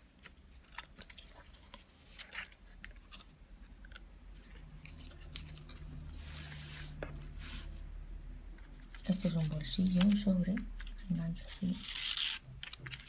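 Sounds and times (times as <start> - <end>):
sliding rustle of paper: 4.4 - 7.8
paper rustling and clicks: 8.6 - 11.2, 11.8 - 13.0.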